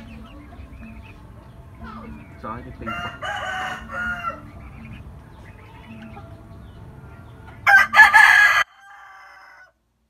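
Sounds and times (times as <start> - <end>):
rooster crowing: 2.8 - 4.5, 7.6 - 9.8.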